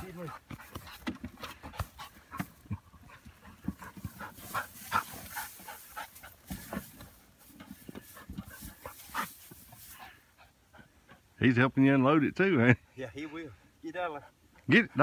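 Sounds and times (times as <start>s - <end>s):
dog panting: 0.0s - 11.4s
dry hay rustling: 3.1s - 10.2s.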